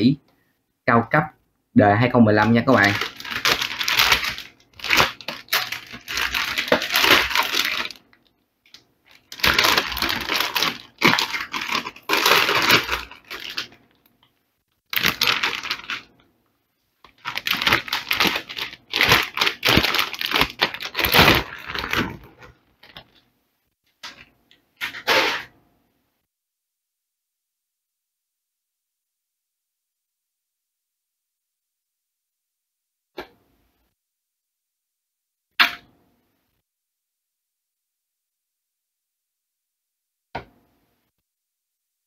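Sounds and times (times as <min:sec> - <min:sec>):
anti-static bag crinkling: 0:02.4 - 0:16.3, 0:17.0 - 0:23.3.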